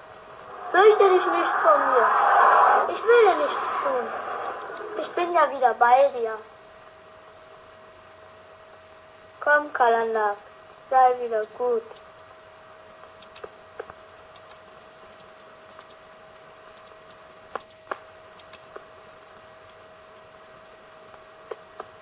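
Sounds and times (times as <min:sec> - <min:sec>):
faint steady whine: 0:00.0 - 0:22.0
film soundtrack clicks and pops: 0:13.1 - 0:14.6, 0:15.2 - 0:18.9.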